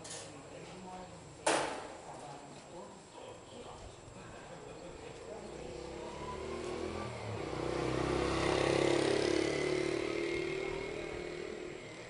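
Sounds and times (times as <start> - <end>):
vehicle engine driving past: 5.5 - 12.0.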